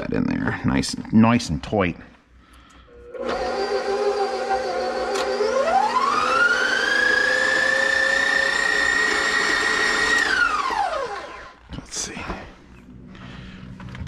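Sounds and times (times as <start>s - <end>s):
stand mixer motor whining: 3.1s - 11.6s.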